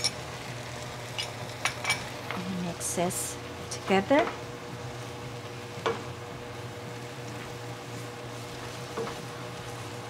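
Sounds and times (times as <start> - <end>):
spatula stirring in a wok: 7.0 - 10.0.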